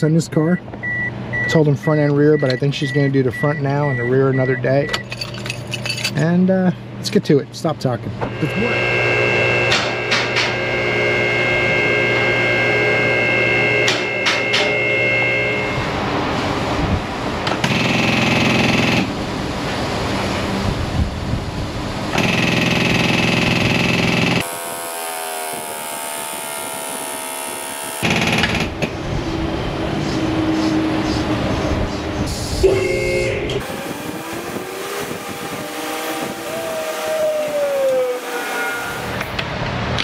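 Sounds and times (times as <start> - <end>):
air impact wrench bursts: 22.1 - 28.8.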